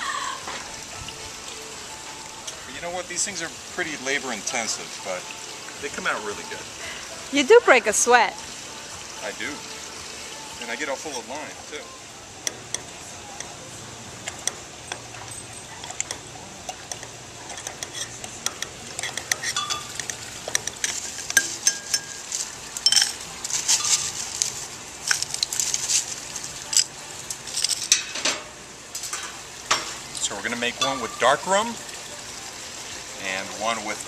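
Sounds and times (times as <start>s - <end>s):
muddler grinding in glass: 17.4s - 24.4s
glassy clinks: 17.6s - 24.2s, 30.8s - 31.4s
crushed ice clattering: 20.8s - 28.2s.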